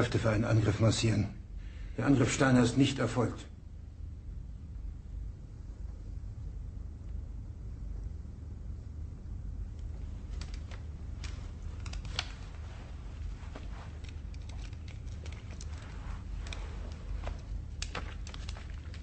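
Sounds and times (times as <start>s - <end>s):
low room rumble: 0.0s - 19.0s
small clicks and rustles: 9.7s - 19.0s.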